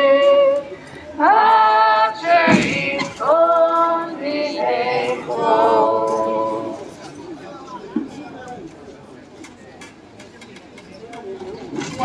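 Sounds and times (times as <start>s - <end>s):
group singing a hymn unaccompanied: 0.0s - 0.6s, 1.2s - 6.9s.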